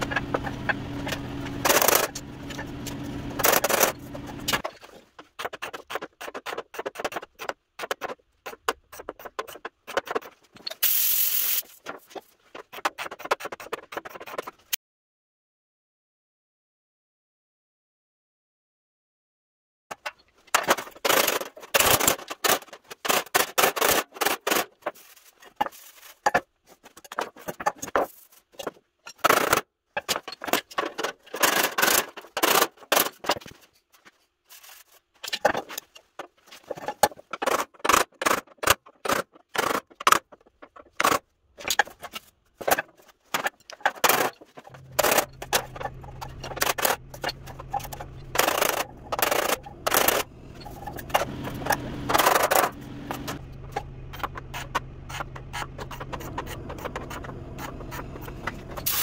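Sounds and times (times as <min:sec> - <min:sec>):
low steady hum: 0:44.7 - 0:59.0.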